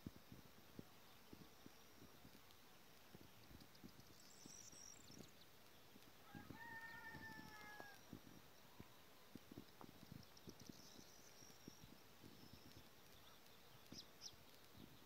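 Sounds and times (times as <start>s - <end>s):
small bird chirping: 0.0s - 15.0s
faint rooster crowing: 6.2s - 9.4s.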